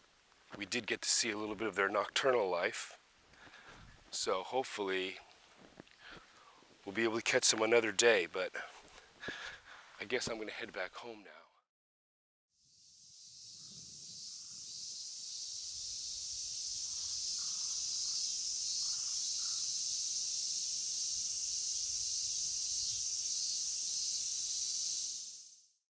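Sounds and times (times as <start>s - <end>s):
cicadas singing: 12.6s - 25.8s.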